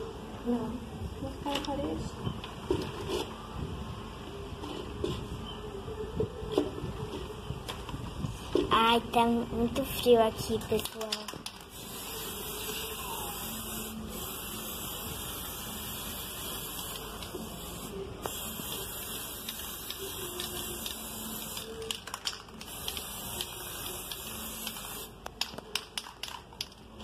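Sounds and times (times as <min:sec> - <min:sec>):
spray paint can hissing: 0:10.6 - 0:26.8.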